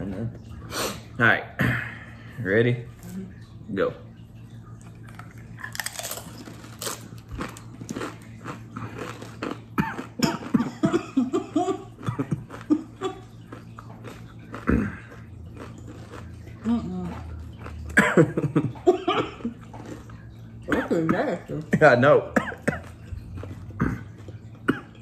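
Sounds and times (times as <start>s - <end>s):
people crunching chips: 4.8s - 18.8s, 19.4s - 20.7s, 22.6s - 24.7s.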